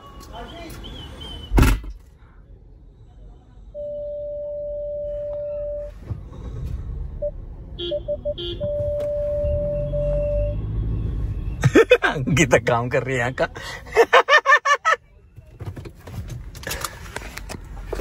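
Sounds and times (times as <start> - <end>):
loud thump: 1.6 - 2.0
parking sensor beeping: 3.8 - 6.0, 7.2 - 10.6.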